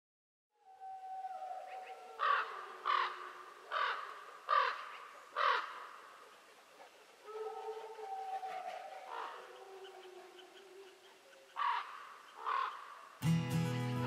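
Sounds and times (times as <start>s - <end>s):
wolves howling: 0.6s - 4.8s, 7.1s - 12.7s
crow cawing: 2.2s - 6.1s, 11.6s - 13.2s.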